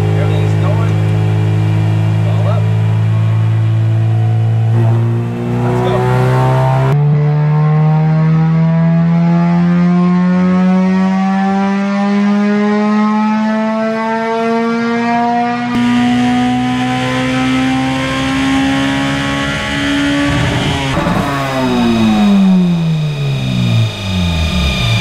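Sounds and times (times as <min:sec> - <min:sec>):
car engine revving at full throttle: 0:00.0 - 0:25.0.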